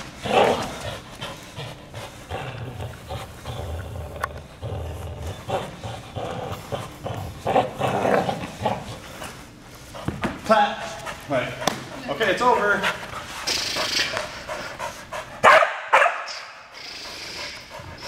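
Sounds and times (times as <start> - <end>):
dog growling: 0.1 - 9.2.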